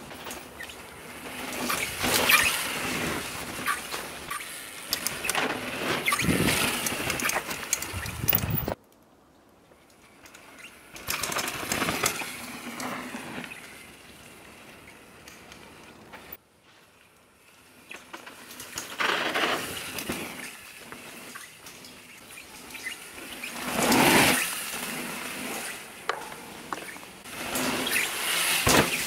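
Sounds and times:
wind on microphone: 7.9s - 8.8s
tyres rushing on dirt: 17.5s - 29.0s.

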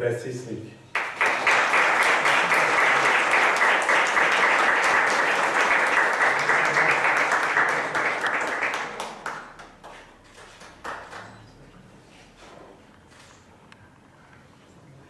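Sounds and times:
audience applauding: 0.9s - 11.5s.

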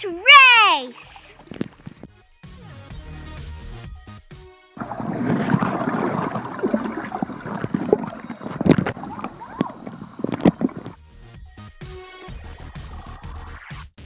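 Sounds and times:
sharp pops underwater: 1.3s - 2.1s, 4.8s - 11.0s
underwater churning and bubbling: 4.8s - 11.0s.

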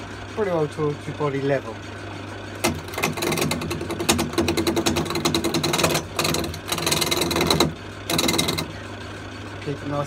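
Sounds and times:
lathe humming: 0.0s - 10.0s
gouge chattering on spinning wood: 2.6s - 8.8s.

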